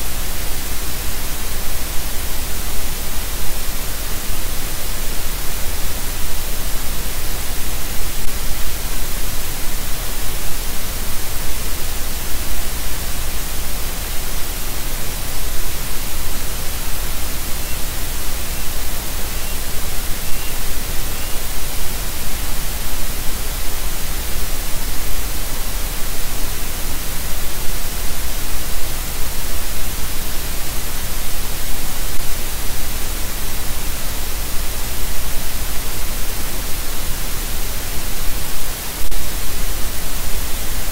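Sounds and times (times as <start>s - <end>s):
static hiss: 0.0s - 40.9s
faint high chirps: 17.6s - 21.5s.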